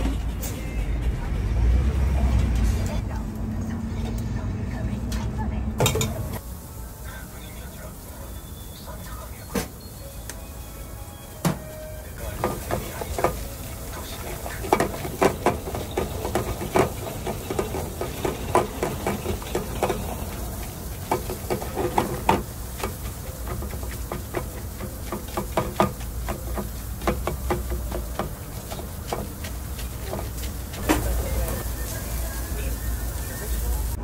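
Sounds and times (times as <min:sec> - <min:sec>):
metal utensils scraping and tapping: 0:05.8 - 0:06.4, 0:12.2 - 0:31.6
food frying on metal: 0:05.8 - 0:34.0.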